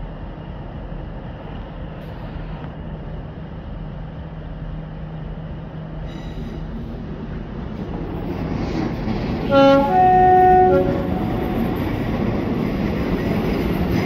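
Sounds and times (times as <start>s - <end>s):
train engine rumble: 0.0s - 14.0s
locomotive two-tone horn: 9.5s - 11.9s.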